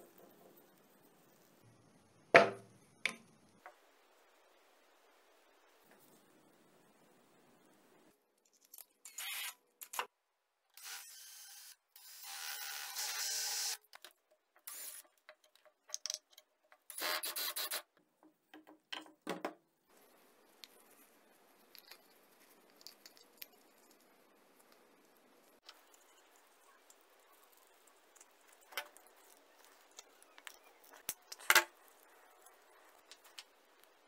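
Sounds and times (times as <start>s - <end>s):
drill boring through plastic: 10.8s - 13.8s.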